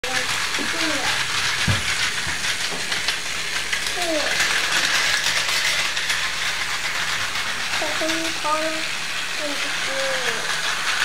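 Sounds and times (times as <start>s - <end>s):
child's voice: 0.0s - 1.2s, 3.9s - 4.4s, 7.8s - 10.6s
toy train motor whirring: 0.0s - 11.0s
wheels clicking over track: 0.0s - 11.0s.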